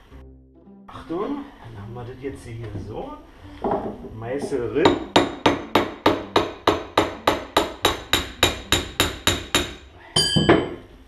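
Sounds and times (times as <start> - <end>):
hammer tapping chisel: 3.6 - 10.8
ringing metallic clang: 10.2 - 10.9.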